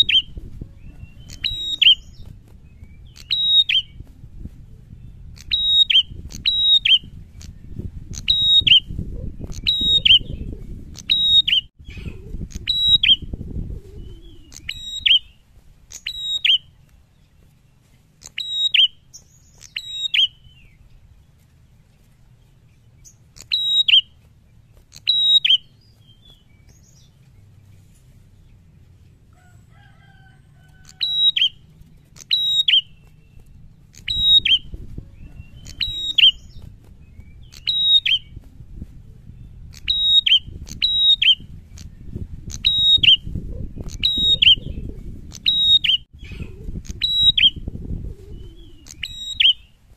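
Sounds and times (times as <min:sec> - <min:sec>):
low rustling rumble: 0:00.0 - 0:15.9, 0:20.3 - 0:23.4, 0:25.6 - 0:29.7, 0:32.8 - 0:49.9.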